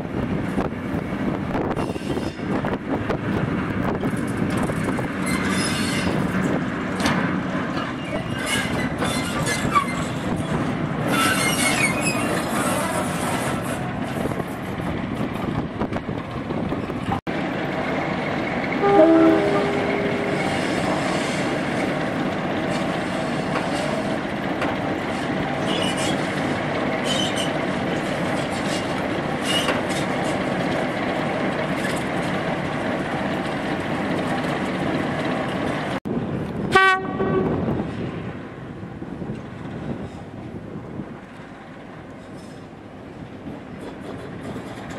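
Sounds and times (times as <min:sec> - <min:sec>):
diesel locomotives running: 0:00.0 - 0:44.9
wheel squeal: 0:01.7 - 0:02.6, 0:05.2 - 0:06.4, 0:07.7 - 0:13.8, 0:25.2 - 0:27.7, 0:28.3 - 0:30.4
locomotive horn: 0:18.8 - 0:21.3, 0:36.7 - 0:37.6.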